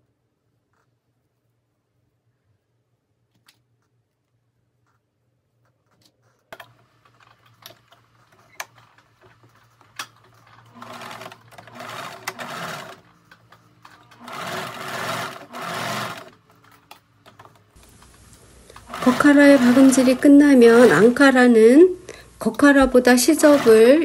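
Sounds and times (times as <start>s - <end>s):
sewing machine stitching: 6.6s - 16.9s, 17.9s - 21.4s, 22.4s - 24.0s.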